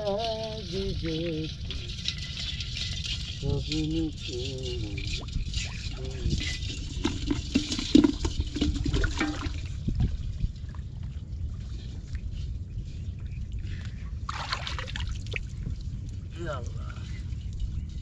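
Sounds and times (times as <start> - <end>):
water splashing and sloshing: 0.0 - 18.0.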